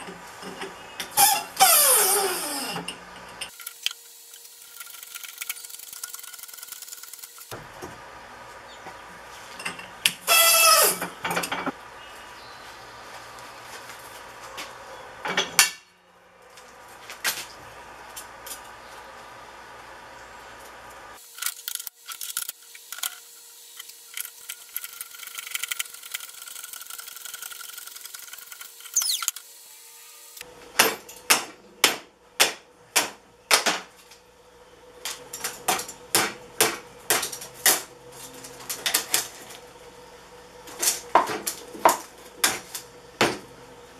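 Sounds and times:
metal squealing under load: 0:01.1 - 0:02.9, 0:10.2 - 0:11.2.

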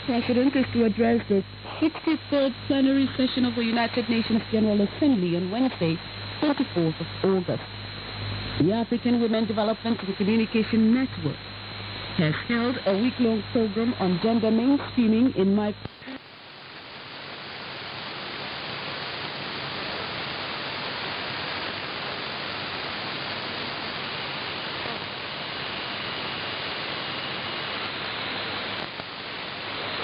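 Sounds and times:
faint low hum: 0:00.0 - 0:16.2
radio static and hiss: 0:00.0 - 0:30.0.

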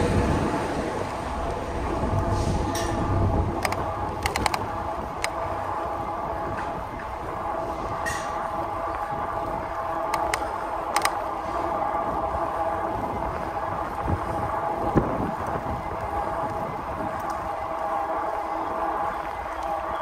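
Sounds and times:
e-bike motor and tyre whine: 0:00.0 - 0:20.0
wind noise: 0:00.0 - 0:20.0
sharp clicks: 0:03.6 - 0:05.4, 0:10.0 - 0:11.2.

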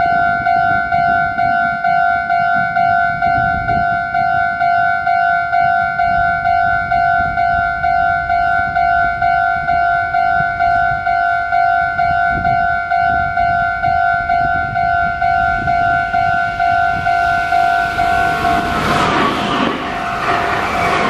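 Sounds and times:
level-crossing alarm two-tone beep: 0:00.0 - 0:21.0
approaching train rumble and hiss: 0:15.5 - 0:21.0.

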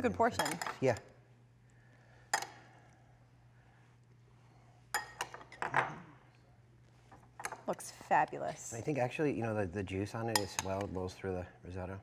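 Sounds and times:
faint steady hum: 0:00.0 - 0:12.0
metal spoon clinking on dishes: 0:00.3 - 0:01.0, 0:04.9 - 0:05.8, 0:10.3 - 0:10.9.

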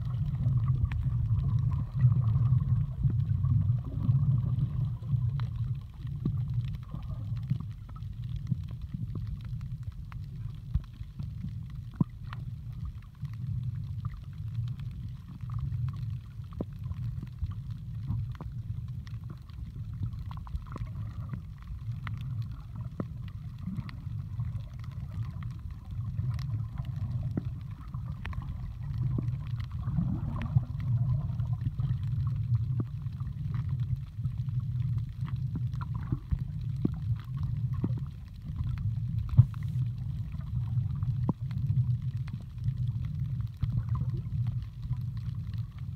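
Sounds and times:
muffled underwater rumble: 0:00.0 - 0:45.9
faint clicks: 0:00.1 - 0:45.9.

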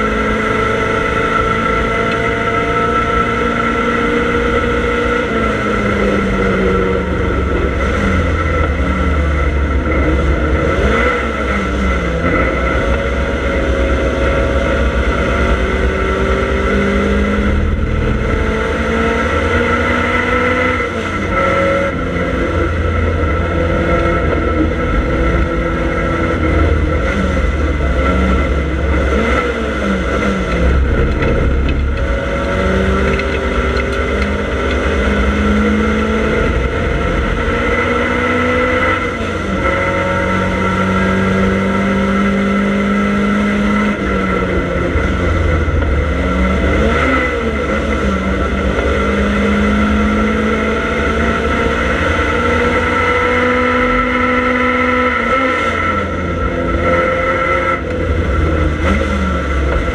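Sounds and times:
race car engine accelerating: 0:00.0 - 0:59.9.

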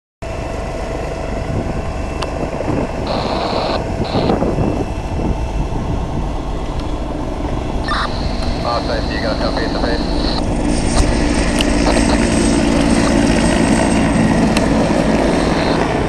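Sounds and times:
engine rumble: 0:00.2 - 0:16.0
wind buffeting microphone: 0:00.3 - 0:16.0
short high-pitched tones: 0:03.1 - 0:04.4, 0:07.9 - 0:08.7, 0:10.0 - 0:10.4, 0:15.3 - 0:15.8.

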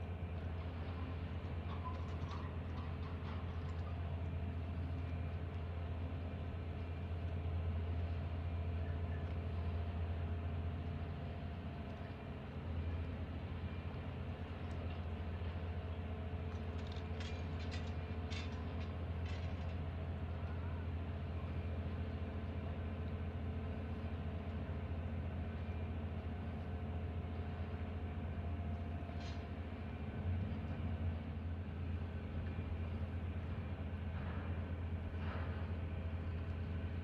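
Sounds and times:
low ferry engine drone: 0:00.0 - 0:37.0.

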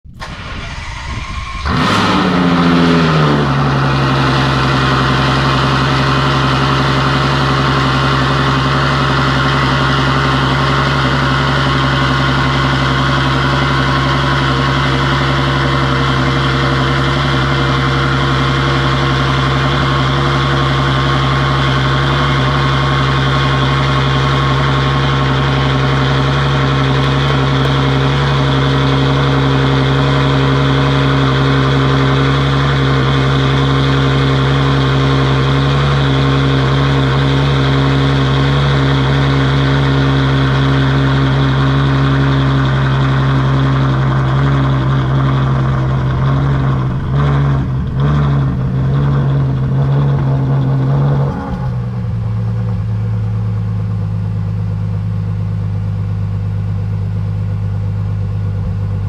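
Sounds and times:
engine revving and idling: 0:00.0 - 0:59.0
engine cranking: 0:00.1 - 0:17.3, 0:42.7 - 0:53.0.

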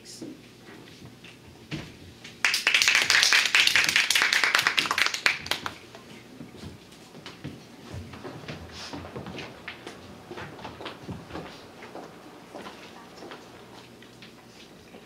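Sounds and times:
audience applauding: 0:02.4 - 0:05.9.

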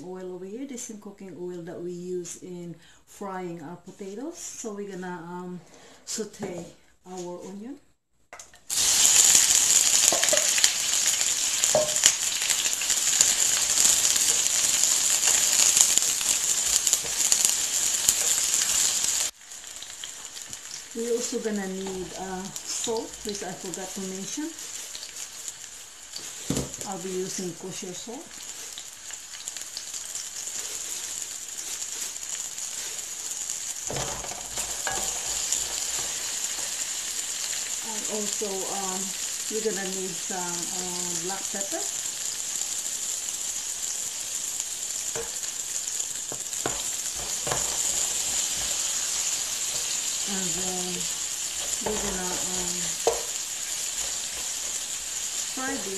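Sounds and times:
onions sizzling in oil: 0:08.6 - 0:55.9
spatula knocking on skillet: 0:11.7 - 0:12.2, 0:45.1 - 0:45.4, 0:46.3 - 0:48.0, 0:53.0 - 0:53.4
wooden spatula stirring: 0:23.3 - 0:27.0, 0:28.4 - 0:37.8, 0:46.3 - 0:55.9.

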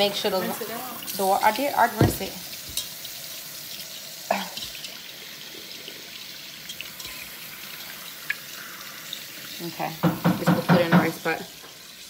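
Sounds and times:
tap water running: 0:00.0 - 0:12.0
pot knocking: 0:10.0 - 0:11.4.

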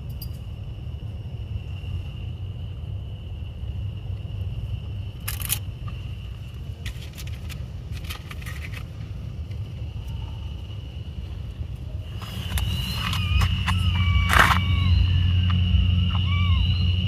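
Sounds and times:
crickets trilling: 0:00.0 - 0:17.0
low rumble: 0:00.0 - 0:17.0
sharp clicks and rattles: 0:05.2 - 0:06.0, 0:06.8 - 0:09.6.

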